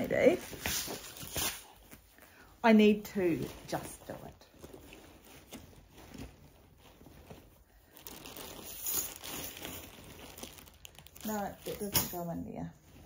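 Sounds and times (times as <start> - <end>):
plastic bags crinkling: 3.7 - 12.6.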